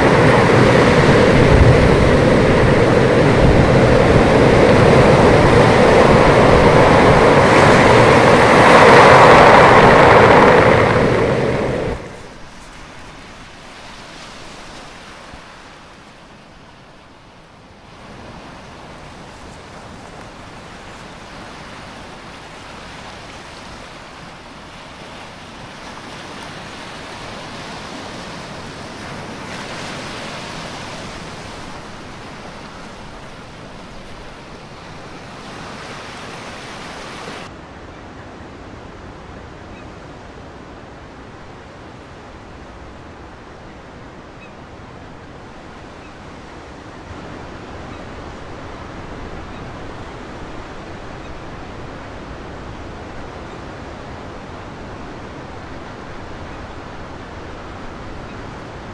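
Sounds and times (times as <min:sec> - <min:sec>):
surf breaking over rocks: 0:00.0 - 0:16.2, 0:18.0 - 0:37.5.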